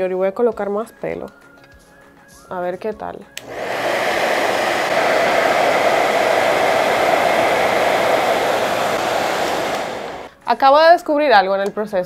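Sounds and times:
hair dryer blowing: 3.4 - 10.3
hair dryer switch click: 3.4 - 10.3.

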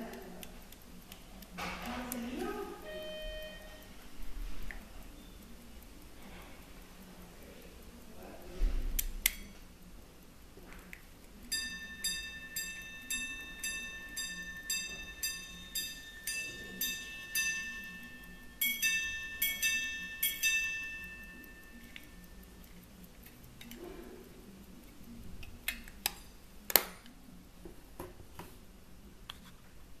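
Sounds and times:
two-note ding-dong chimes: 2.8 - 3.8
watch chiming single notes: 2.8 - 3.9, 11.5 - 22.6
sharp clicks: 8.9 - 11.6.

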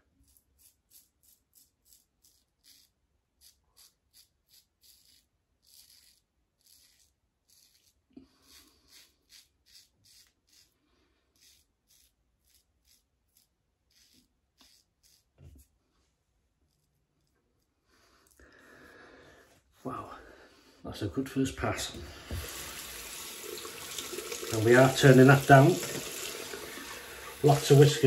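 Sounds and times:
razor scraping stubble: 0.1 - 15.8, 22.0 - 28.0.

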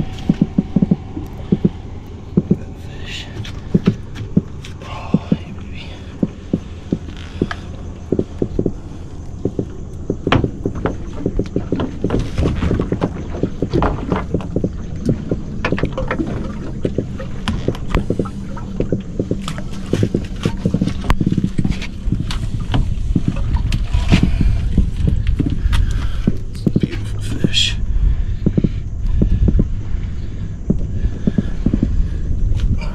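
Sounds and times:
steady low hum: 0.0 - 32.9
fish knocking on boat deck: 9.4 - 16.3.

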